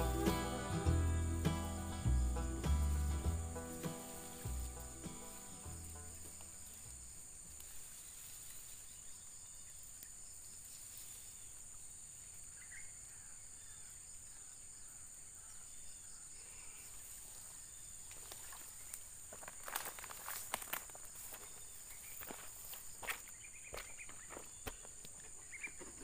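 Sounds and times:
footsteps crunching in grass: 0.0s - 8.9s, 18.1s - 25.7s
insects droning: 0.0s - 26.0s.

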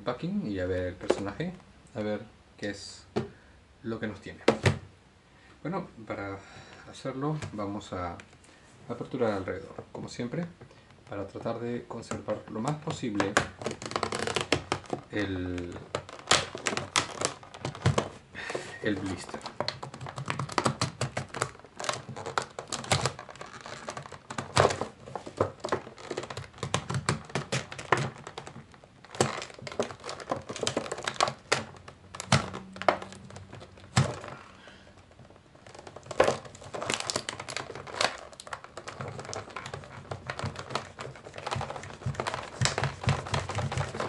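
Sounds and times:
plastic packaging crinkling: 9.0s - 44.0s.

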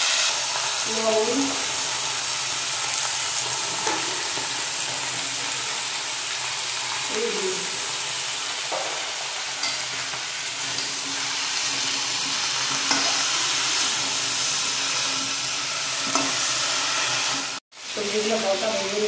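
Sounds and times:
vegetables sizzling in oil: 0.0s - 19.0s
metal spatula stirring: 11.0s - 14.1s.

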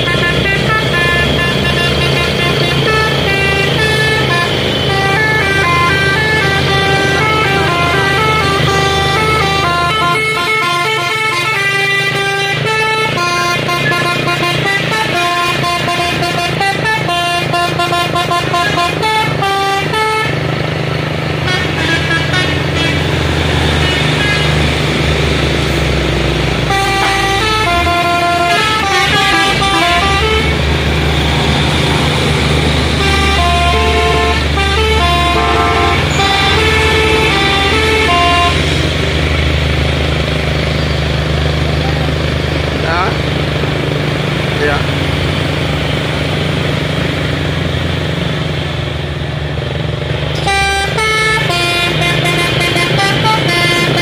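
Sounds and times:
musical air horn: 0.0s - 20.4s, 21.4s - 24.8s, 26.6s - 31.1s, 32.7s - 39.1s, 50.3s - 54.0s
truck engines droning: 0.0s - 54.0s.

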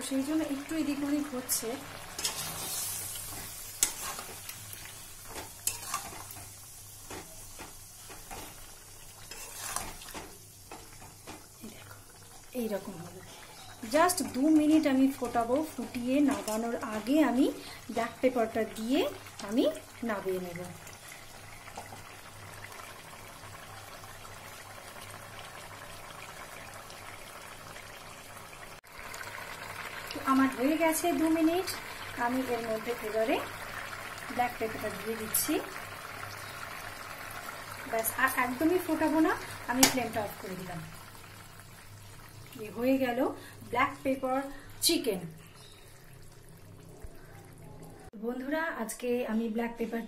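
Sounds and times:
faint sauce sizzling: 0.0s - 49.5s
curry bubbling and popping: 0.1s - 44.6s
spatula scraping a pan: 2.2s - 4.6s, 5.2s - 8.6s, 9.2s - 11.4s.

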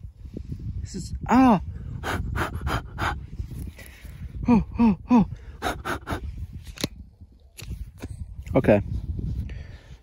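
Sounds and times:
man breathing sharply: 9.4s - 10.0s.

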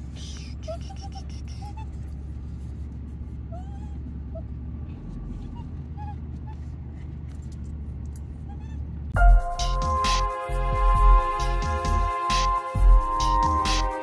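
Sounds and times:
truck driving rumble: 0.0s - 14.0s
dog whimpering: 0.2s - 2.2s, 3.5s - 4.6s, 5.3s - 6.7s, 8.4s - 8.9s
electronic music: 9.2s - 14.0s.

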